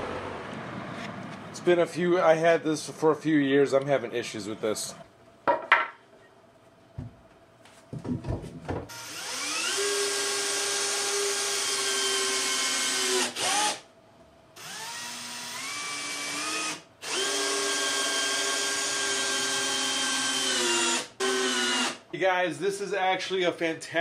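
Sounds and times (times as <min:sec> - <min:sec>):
knocks on wood: 0:07.9 - 0:08.9
cordless drill driving screws into wood: 0:08.9 - 0:13.8, 0:14.6 - 0:22.0.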